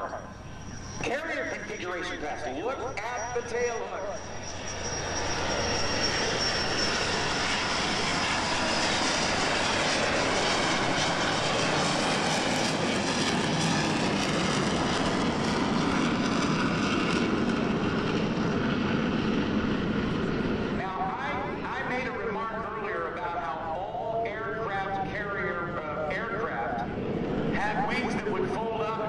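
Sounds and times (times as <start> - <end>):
thin high whine: 0.0 - 7.7
loud jet noise: 0.0 - 29.0.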